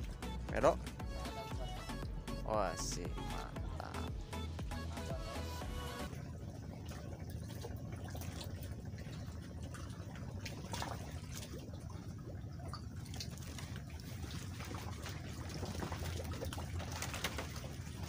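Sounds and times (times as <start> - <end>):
low rumble: 0.0 - 12.9
water lapping and trickling: 0.0 - 18.0
small water splashes: 6.1 - 18.0.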